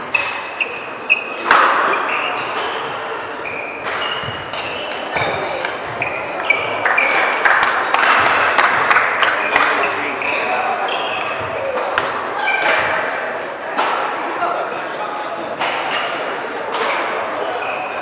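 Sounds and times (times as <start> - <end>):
shoes squeaking on court floor: 0.0 - 7.4, 9.4 - 13.0, 17.4 - 18.0
racket striking shuttlecock: 3.8 - 7.1.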